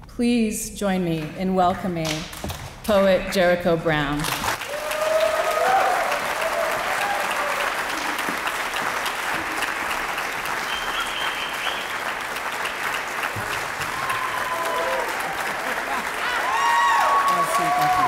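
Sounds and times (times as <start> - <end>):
audience applauding: 4.3 - 18.0.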